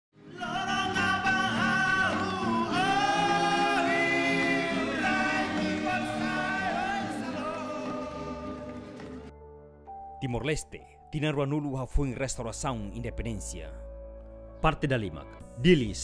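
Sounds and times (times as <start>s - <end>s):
choir singing in harmony: 0.4s - 9.3s.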